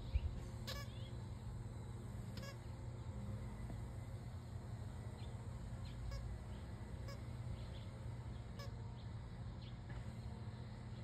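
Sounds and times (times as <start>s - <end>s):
squeaky dog toy squeaks: 0.6s - 1.0s, 2.4s - 2.6s.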